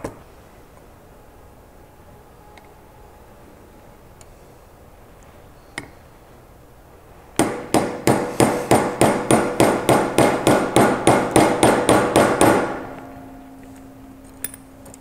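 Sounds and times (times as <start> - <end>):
hammer striking metal punch: 7.4 - 13.1.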